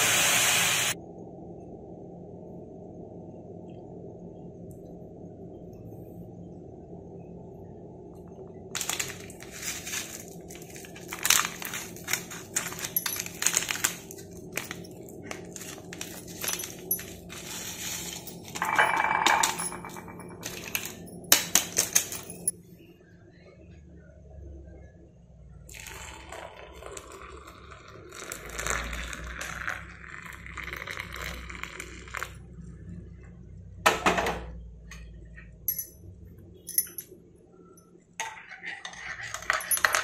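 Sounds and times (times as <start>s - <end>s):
foil sachet crinkling: 8.7s - 18.6s
coffee crystals poured into mug: 8.8s - 22.5s, 25.7s - 32.3s.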